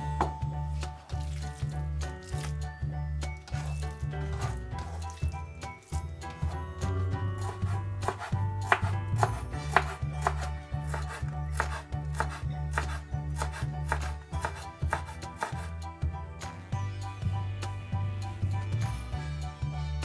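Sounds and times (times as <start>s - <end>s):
background music: 0.0s - 20.0s
knife chopping on cutting board: 3.5s - 5.1s, 7.4s - 15.7s.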